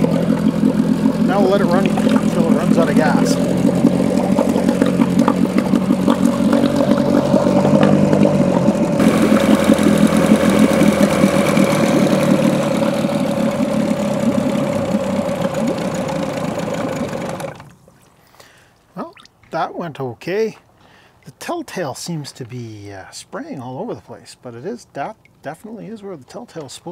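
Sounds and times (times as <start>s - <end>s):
outboard motor running: 0.0s - 18.0s.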